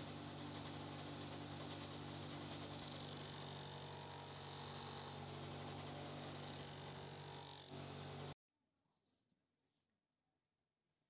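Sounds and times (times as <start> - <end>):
bench grinder motor hum: 0.0 - 8.4.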